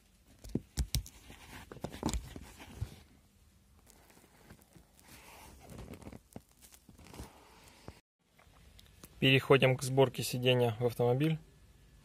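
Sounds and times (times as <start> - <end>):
fabric rustling: 3.8 - 8.0.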